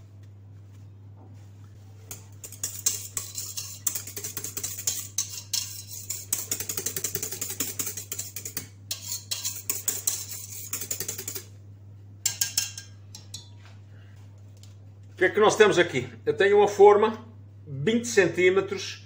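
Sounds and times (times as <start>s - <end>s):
whisk scraping metal bowl: 1.9s - 11.5s, 12.2s - 13.5s.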